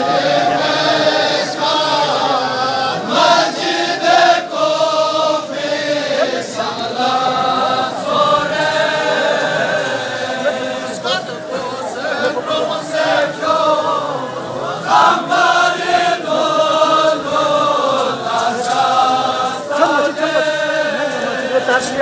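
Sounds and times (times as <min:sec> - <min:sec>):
men chanting a lament: 0:00.0 - 0:22.0.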